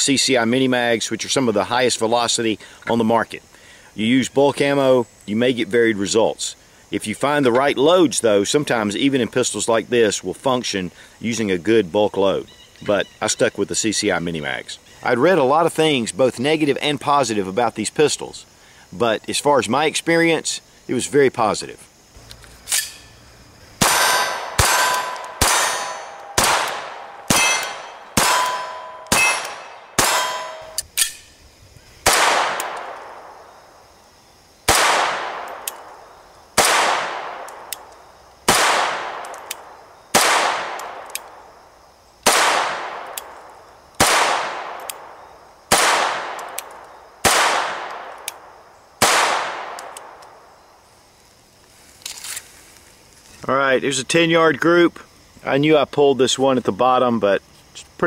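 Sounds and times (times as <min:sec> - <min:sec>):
pistol shots echoing: 0:23.8 - 0:31.2, 0:32.0 - 0:33.4, 0:34.7 - 0:35.9, 0:36.6 - 0:37.7, 0:38.5 - 0:39.5, 0:40.1 - 0:41.1, 0:42.2 - 0:43.2, 0:44.0 - 0:46.6, 0:47.2 - 0:50.2.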